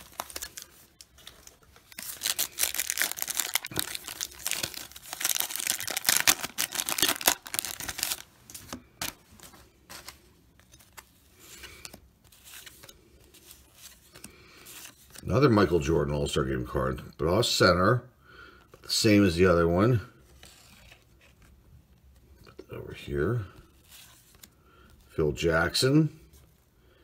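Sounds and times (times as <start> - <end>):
card pack wrapper tearing and crinkling: 0.0 - 9.2
handling of cards: 0.0 - 15.4, 20.2 - 25.3.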